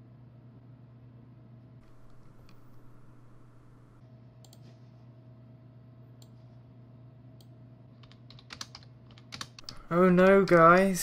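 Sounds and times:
low electrical hum: 0.0s - 11.0s
computer mouse clicks: 1.9s - 2.9s, 4.4s - 4.7s.

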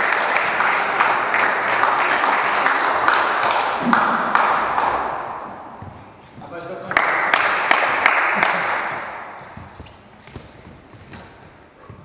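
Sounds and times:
crowd applauding: 0.0s - 5.3s, 6.8s - 9.2s.

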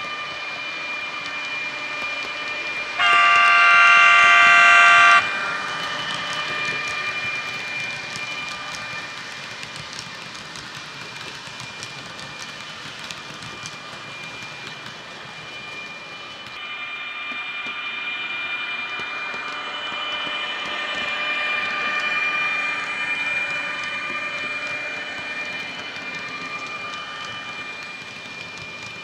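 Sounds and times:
high electric whine: 3.0s - 5.2s.

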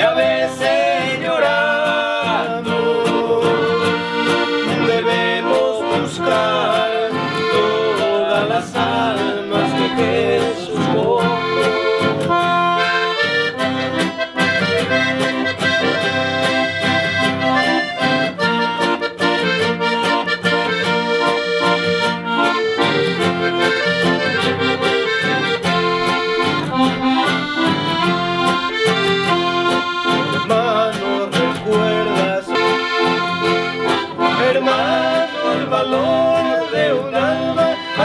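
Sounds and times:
accordion playing hymn melody: 0.0s - 38.0s
acoustic guitar accompaniment: 0.0s - 38.0s.

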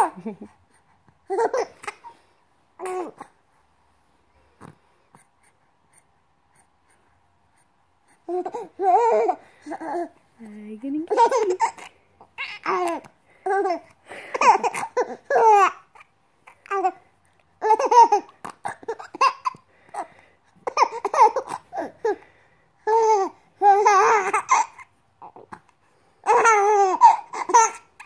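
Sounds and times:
baby laughing: 1.3s - 2.2s, 8.3s - 10.1s, 11.1s - 16.1s, 17.6s - 19.6s, 20.6s - 22.2s, 22.9s - 25.4s, 26.2s - 28.0s.

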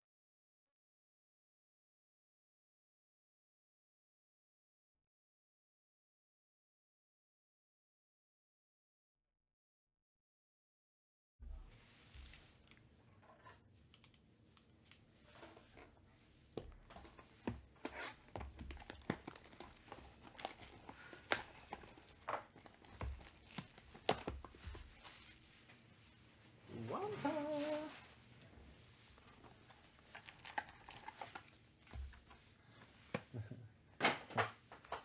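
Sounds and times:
plastic shrink wrap crinkling: 11.8s - 28.3s, 29.0s - 32.5s.

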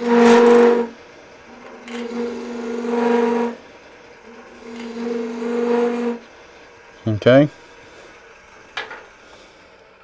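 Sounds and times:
gouge scraping wood on lathe: 0.0s - 6.5s
lathe hum: 0.0s - 10.0s.

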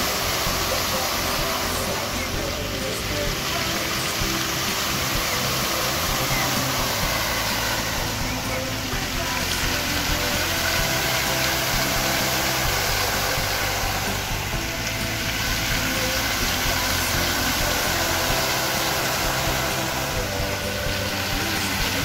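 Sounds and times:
fountain water jets splashing: 0.0s - 22.0s.

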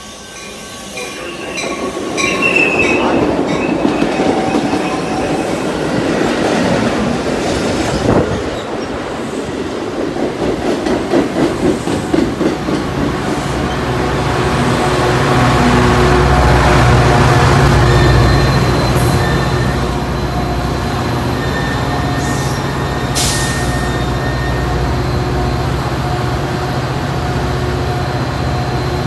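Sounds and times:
train wheel squeal: 0.0s - 5.8s, 17.6s - 26.4s, 27.3s - 29.0s
diesel locomotive drone: 0.0s - 29.0s.

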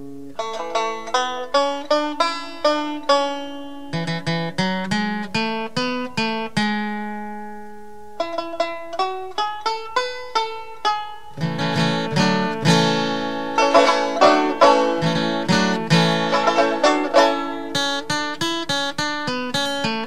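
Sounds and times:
plucked string instrumental tune: 0.0s - 20.0s
lower accompaniment: 7.6s - 19.5s.

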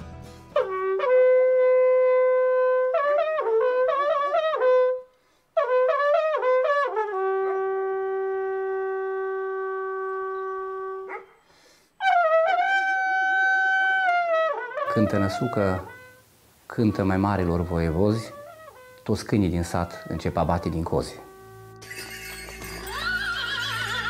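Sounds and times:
wooden horn blowing calls: 12.0s - 24.0s.

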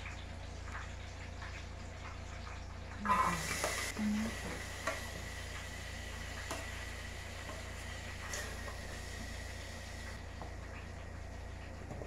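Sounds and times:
vegetables sizzling in hot oil: 2.9s - 11.7s.

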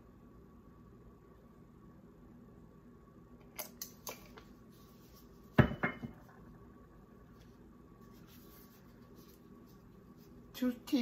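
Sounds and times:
bottle knocking on counter: 5.6s - 6.2s.

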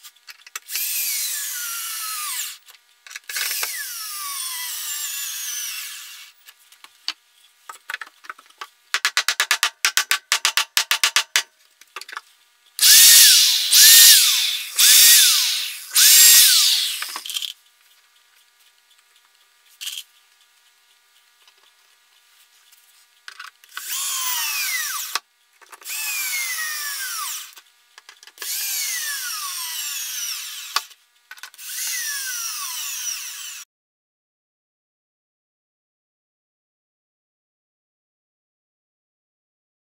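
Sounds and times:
power drill driving screws into wood: 0.7s - 2.6s, 3.3s - 6.4s, 12.8s - 17.5s, 23.7s - 25.2s, 25.8s - 27.6s, 28.4s - 30.9s, 31.6s - 33.6s.

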